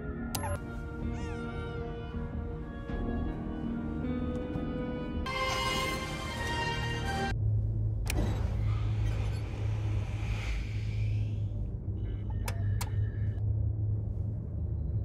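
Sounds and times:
low engine hum: 0:07.3 - 0:15.0.

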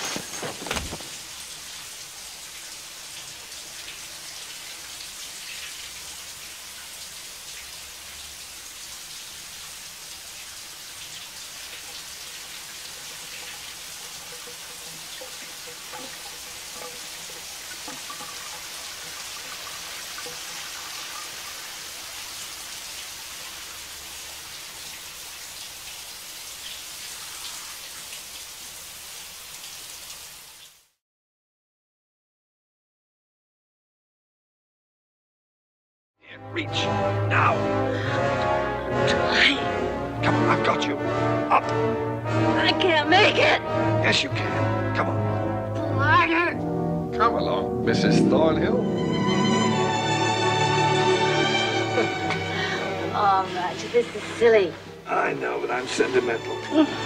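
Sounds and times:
shower water spraying: 0:00.0 - 0:30.9, 0:49.2 - 0:57.0.

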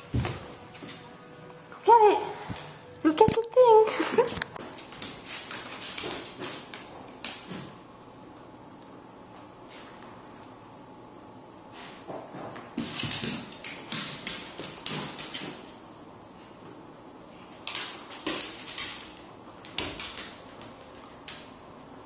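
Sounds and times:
dog claws scrabbling on wood floor: 0:04.7 - 0:07.7, 0:17.5 - 0:21.5.

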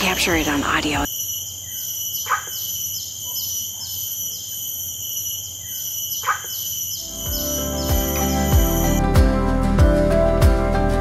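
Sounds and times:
insects chorus: 0:00.0 - 0:09.0
animal barking calls: 0:01.8 - 0:04.4, 0:05.7 - 0:09.0.

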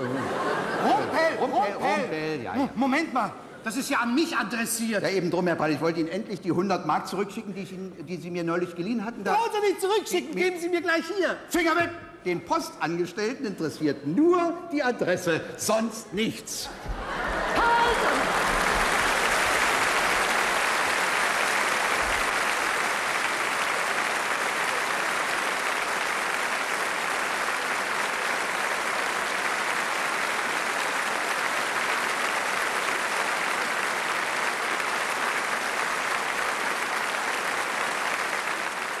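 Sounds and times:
large audience applauding: 0:16.7 - 0:39.0.

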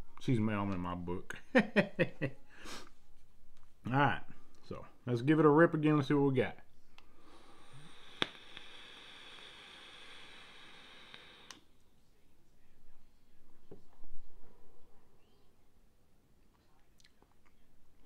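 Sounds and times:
airflow hiss: 0:07.0 - 0:11.7
vape coil sizzling: 0:07.0 - 0:11.7
person exhaling vapour: 0:07.1 - 0:11.6.

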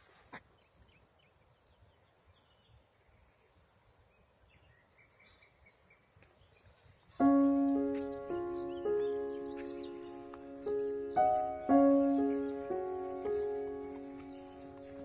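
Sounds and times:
faint high bird chirps: 0:04.2 - 0:15.0.

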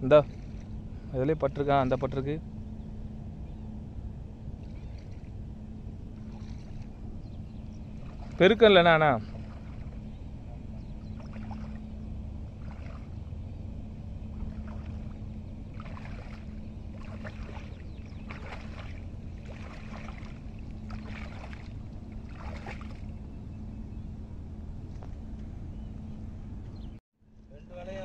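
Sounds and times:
shallow water splashing: 0:00.0 - 0:02.2, 0:06.1 - 0:23.2
wind rumble: 0:00.0 - 0:27.0
steady low hum: 0:00.0 - 0:28.0.

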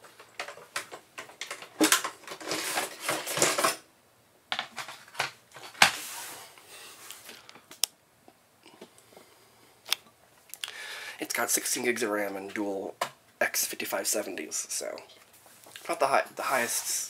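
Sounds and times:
metal tray scraping and rattling: 0:01.8 - 0:03.8.

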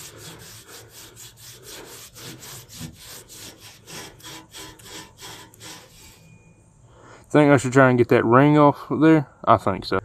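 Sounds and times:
cloth scrubbing metal pipe: 0:00.0 - 0:06.5.

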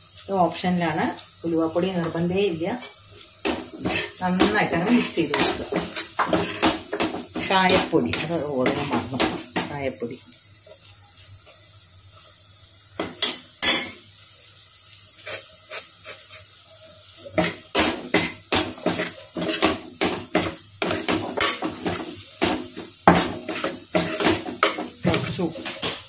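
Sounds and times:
ladle scraping metal pot: 0:03.7 - 0:09.4, 0:17.4 - 0:22.0.

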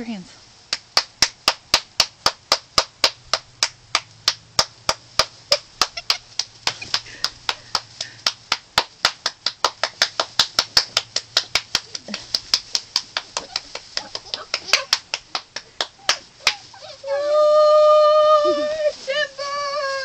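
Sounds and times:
person clapping hands: 0:00.7 - 0:16.7.

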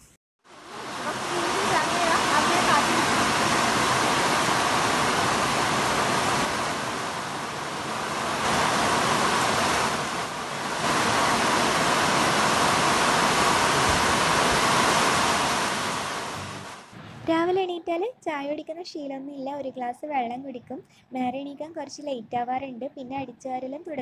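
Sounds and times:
heavy rain pouring: 0:00.5 - 0:17.0.

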